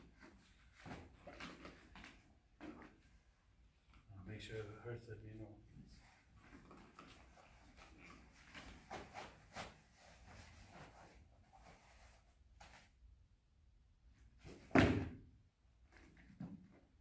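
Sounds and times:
strike on kick shield: 0:14.7 - 0:15.2.

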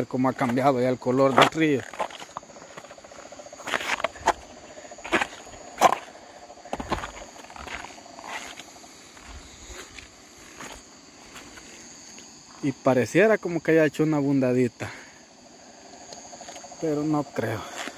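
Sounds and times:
frogs trilling: 0:00.0 - 0:17.9
insects buzzing: 0:00.0 - 0:17.9
footsteps on river cobbles: 0:00.3 - 0:11.8.

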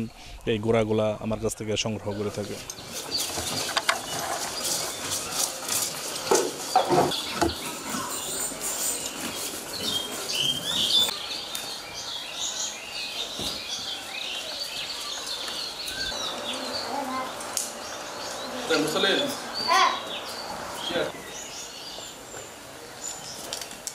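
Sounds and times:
birds chirping: 0:01.2 - 0:23.8
horse chewing hay: 0:02.7 - 0:11.0.

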